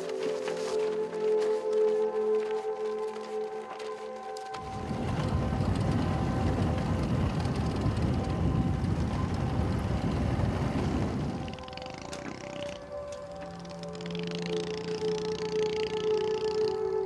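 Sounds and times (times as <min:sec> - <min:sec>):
wind buffeting microphone: 0:04.6 - 0:11.6.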